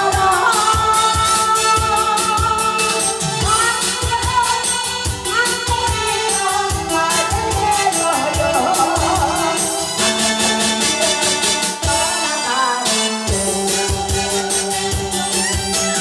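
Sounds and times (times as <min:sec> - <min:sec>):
amplified accompaniment with beat: 0:00.0 - 0:16.0
woman singing into microphone: 0:00.0 - 0:16.0.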